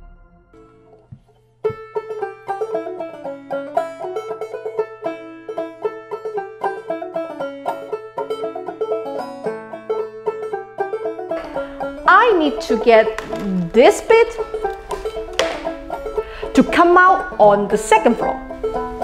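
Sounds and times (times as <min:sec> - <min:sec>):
steady low drone: 0:00.0 - 0:01.2
plucked-string notes: 0:00.0 - 0:19.0.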